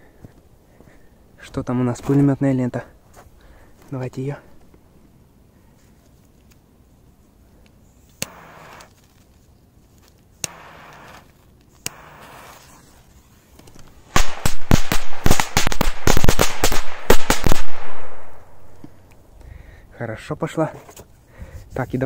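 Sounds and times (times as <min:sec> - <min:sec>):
lighter clicking and hissing: 0:08.1 - 0:08.9, 0:10.4 - 0:12.7
firecracker string banging: 0:10.4 - 0:12.8.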